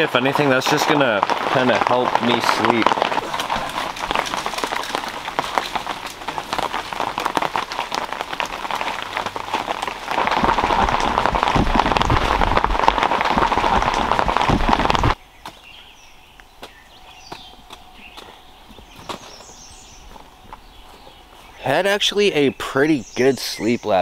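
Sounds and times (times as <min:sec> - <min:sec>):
steady rain falling: 0:00.0 - 0:15.2.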